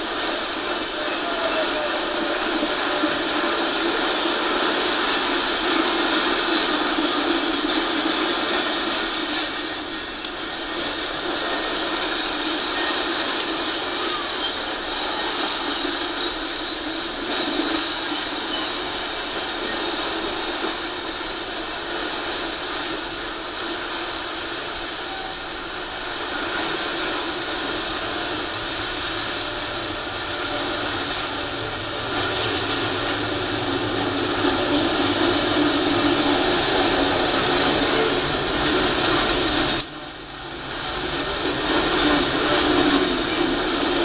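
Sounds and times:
train wheels on rails: 0:00.0 - 0:44.0.

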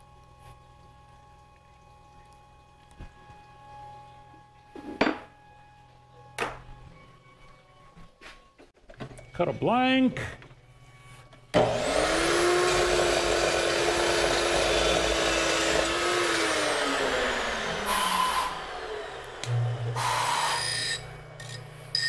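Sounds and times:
mill spindle humming: 0:10.3 - 0:22.0
short air blasts: 0:17.9 - 0:18.6, 0:20.0 - 0:20.6.

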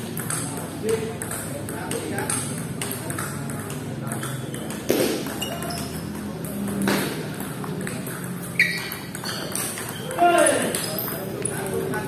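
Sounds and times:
table tennis ball pocks: 0:04.2 - 0:05.7.

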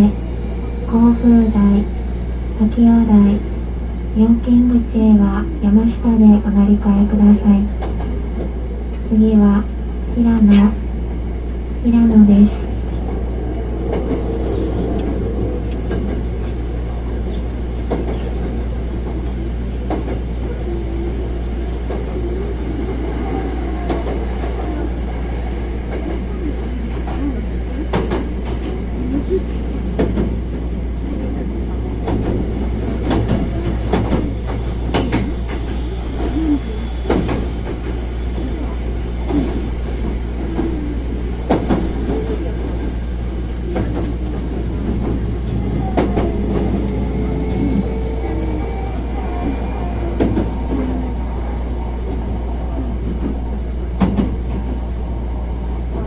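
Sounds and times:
train wheels rumbling on rail: 0:00.0 - 0:56.0
rising whine: 0:12.4 - 0:17.8, 0:45.5 - 0:53.7.

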